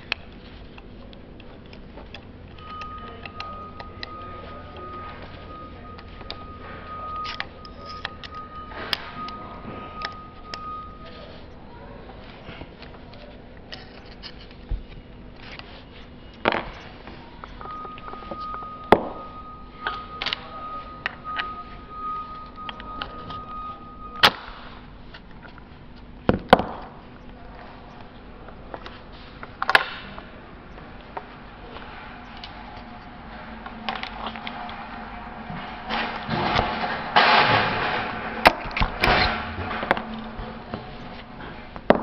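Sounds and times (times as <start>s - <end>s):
metal tools clicking and knocking: 0.0s - 11.6s
metal parts clicking and scraping: 0.0s - 26.1s, 28.7s - 42.0s
faint low hum: 0.0s - 42.0s
steady high tone: 2.3s - 12.6s, 15.8s - 25.0s.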